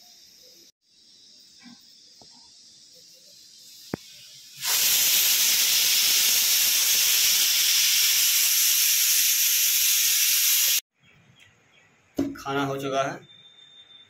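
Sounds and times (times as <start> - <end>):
pressure cooker hissing steam: 2.5 - 10.8.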